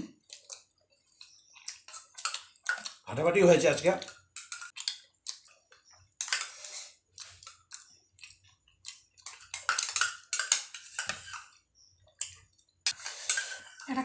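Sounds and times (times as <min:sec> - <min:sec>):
chewing: 0:00.2 - 0:03.0, 0:04.0 - 0:10.3, 0:11.3 - 0:12.7
spoons scraping bowls: 0:00.5 - 0:03.0, 0:03.7 - 0:04.8, 0:06.1 - 0:08.4, 0:09.2 - 0:14.0.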